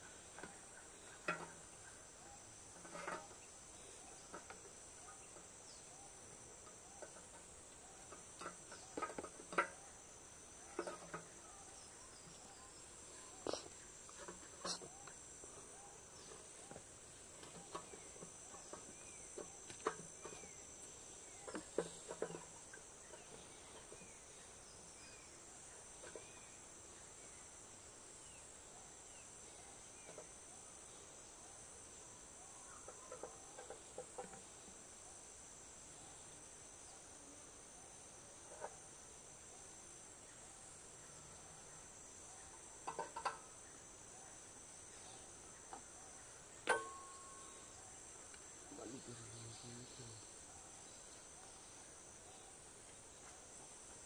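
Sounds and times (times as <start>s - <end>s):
faint knocks and clatters: 0.0s - 10.0s, 10.6s - 12.8s, 13.4s - 25.1s, 25.9s - 26.5s, 32.8s - 34.7s, 42.5s - 43.6s
insects droning: 0.0s - 54.0s.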